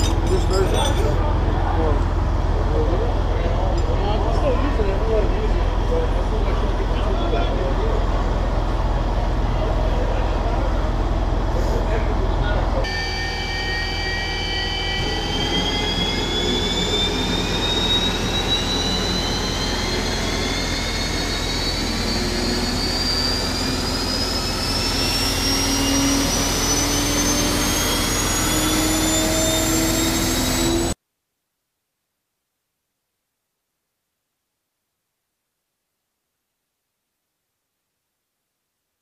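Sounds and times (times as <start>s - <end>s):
low engine rumble: 0.0s - 12.8s
turbine engine whine rising: 0.0s - 31.0s.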